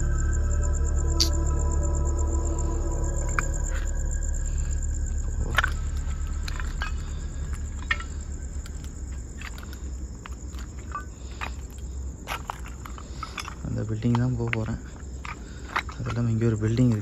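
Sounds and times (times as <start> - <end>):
crickets trilling: 0.0 - 17.0
footsteps on rubble: 5.4 - 17.0.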